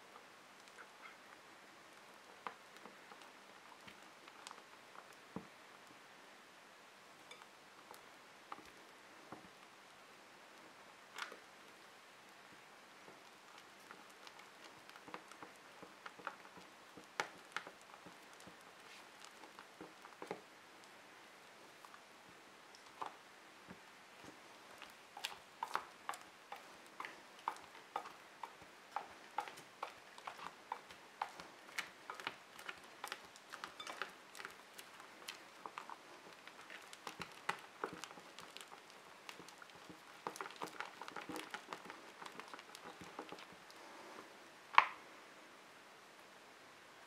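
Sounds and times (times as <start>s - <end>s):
slime squelching: 22.8s - 44.0s.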